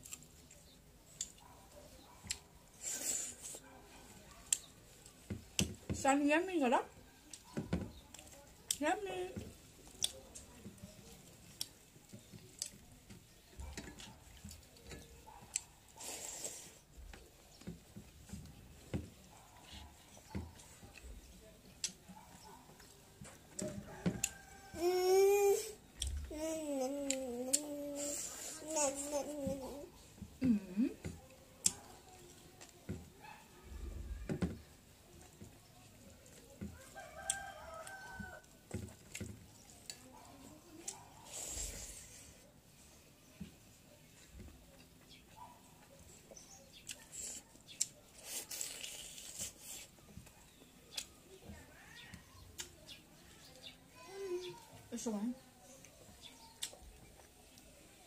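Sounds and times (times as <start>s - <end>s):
fingers mixing rice on a plate: 34.6s - 42.8s.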